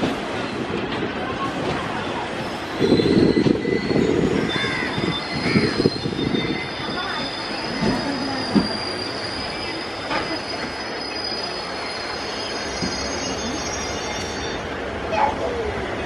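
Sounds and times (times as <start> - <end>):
train rumbling past: 0.0 - 16.0
metallic wheel squeal: 2.9 - 14.7.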